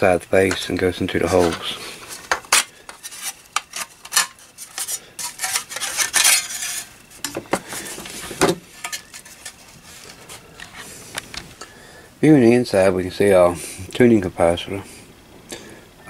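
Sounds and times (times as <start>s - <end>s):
sheet metal clinks and scrapes: 4.1s - 7.4s.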